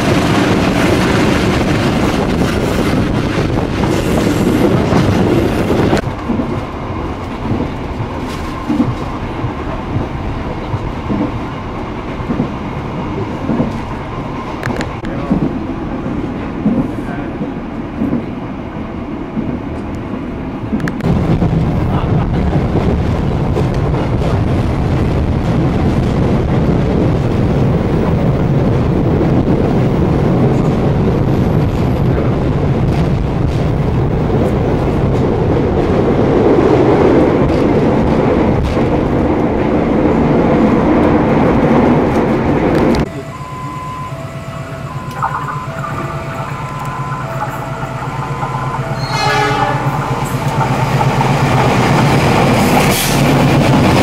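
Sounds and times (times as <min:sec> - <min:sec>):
train wheels rumbling on rails: 0:00.0 - 0:54.0
two-note beeping tone: 0:43.1 - 0:50.0.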